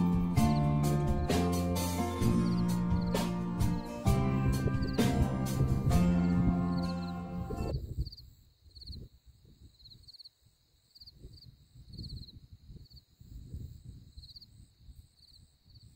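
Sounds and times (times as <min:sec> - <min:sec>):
crickets chirping: 0:00.5 - 0:03.2, 0:06.3 - 0:15.9.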